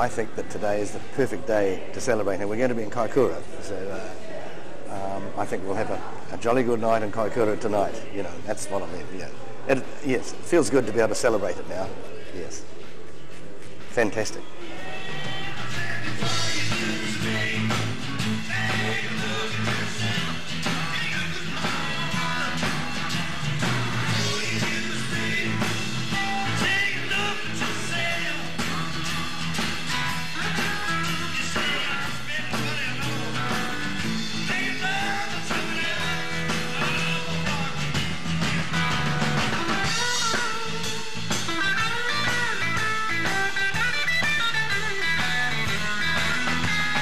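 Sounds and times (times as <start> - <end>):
man singing: 14.6 - 28.8, 30.3 - 39.0
drums: 14.8 - 47.0
electric guitar: 16.1 - 47.0.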